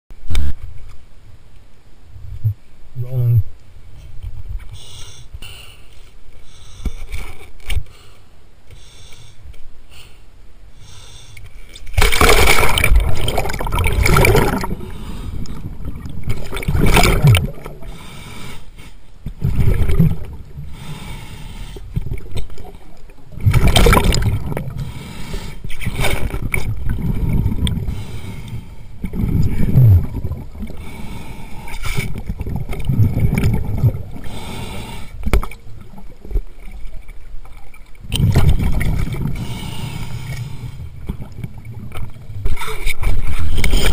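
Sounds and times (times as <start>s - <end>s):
underwater water noise: 0.1s - 43.9s
underwater breath bubbles gurgling: 10.8s - 37.0s, 38.0s - 43.9s
splash into water: 12.0s - 14.8s, 23.5s - 24.4s.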